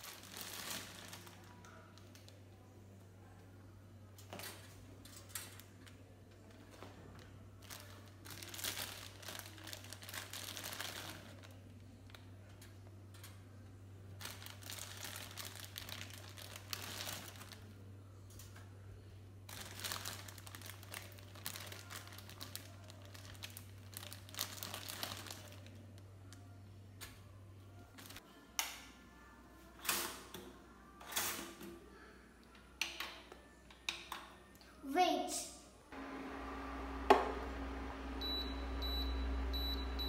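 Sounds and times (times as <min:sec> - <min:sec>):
plastic bag crinkling: 0:00.0 - 0:01.6, 0:07.6 - 0:11.6, 0:14.2 - 0:17.7, 0:19.5 - 0:26.0.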